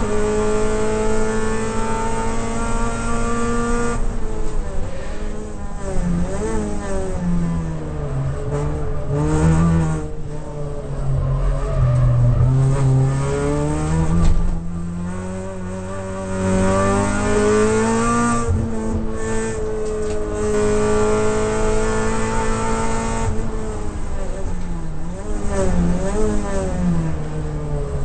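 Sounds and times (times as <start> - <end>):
race car engine revving: 5.8 - 28.0.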